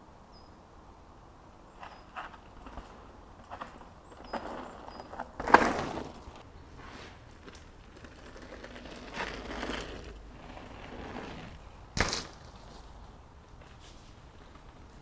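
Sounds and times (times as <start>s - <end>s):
bike tyres crunching on dirt: 1.7s - 15.0s
bike landing thud: 11.9s - 13.0s.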